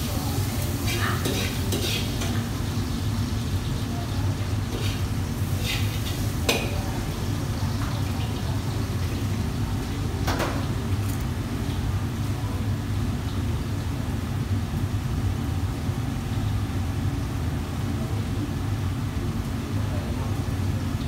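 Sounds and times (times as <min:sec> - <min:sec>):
low rumble of wok station: 0:00.0 - 0:21.0
ladle clinking against woks: 0:00.9 - 0:02.4.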